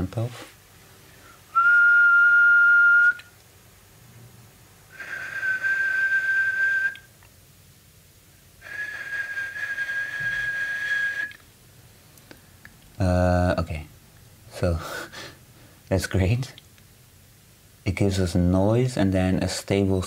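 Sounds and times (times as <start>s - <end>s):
breathing: 1.0s - 1.5s, 14.8s - 15.8s
person whistling held notes: 1.5s - 3.3s, 5.0s - 7.1s, 8.6s - 11.4s.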